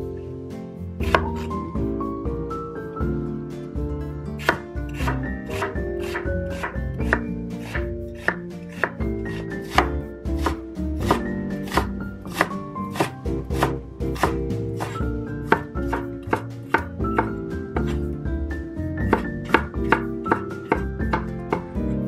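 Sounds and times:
light background music: 0.0 - 22.0
knife chopping on cutting board: 1.0 - 1.5, 4.4 - 18.2, 19.0 - 22.0.

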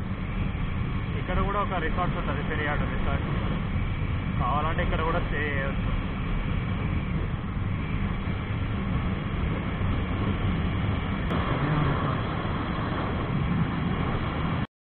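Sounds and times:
motorcycle engine running: 0.0 - 14.6
wind rushing: 0.0 - 14.7.

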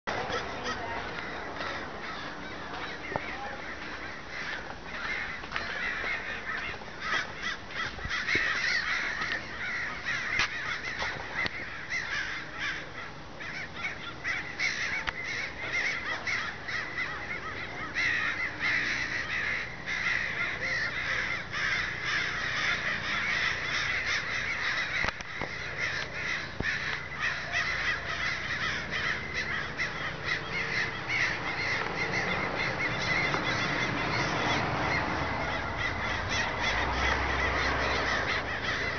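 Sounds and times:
flock of crows cawing: 0.1 - 38.9.

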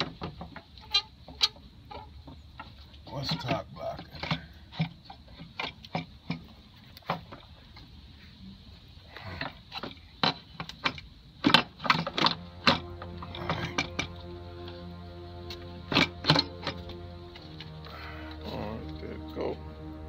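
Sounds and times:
steady pitched hum: 11.8 - 20.0.

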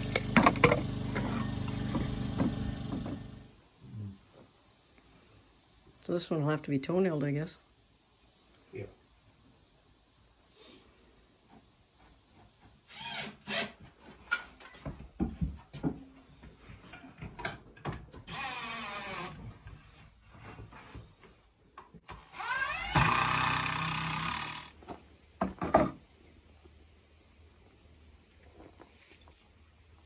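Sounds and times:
cordless drill driving screw: 18.2 - 19.4, 22.1 - 24.7.

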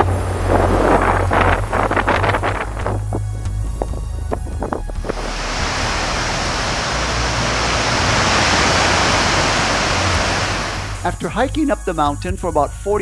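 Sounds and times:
river rushing over rocks: 5.0 - 11.0.

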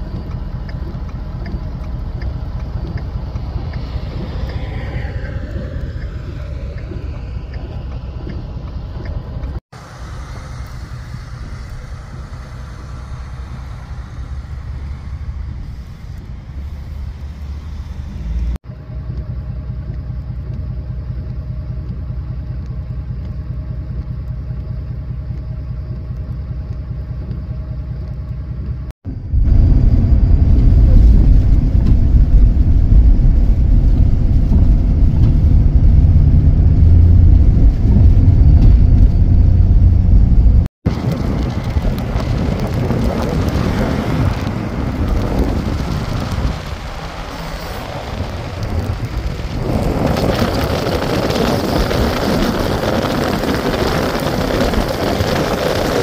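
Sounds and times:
truck engines idling: 0.0 - 28.9
steady hum: 0.0 - 40.7
vehicle rumbling on snowy road: 0.0 - 56.0.

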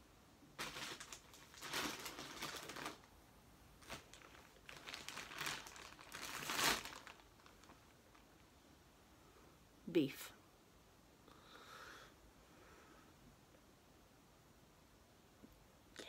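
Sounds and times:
plastic bags rustling: 0.5 - 3.1, 3.8 - 8.4.

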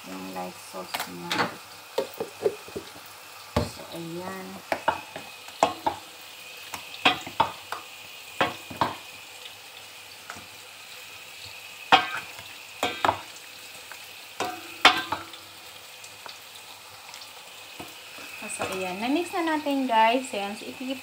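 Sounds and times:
faint sizzle of frying: 0.0 - 21.0.

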